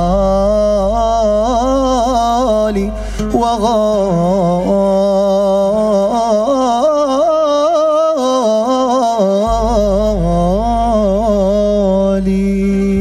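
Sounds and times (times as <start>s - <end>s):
man singing melismatic run: 9.3s - 13.0s
low accompanying note: 9.5s - 13.0s.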